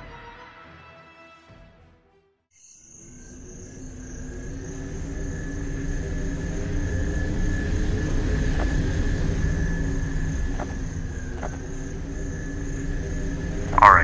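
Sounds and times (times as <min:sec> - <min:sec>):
low rumbling drone: 0:03.0 - 0:14.0.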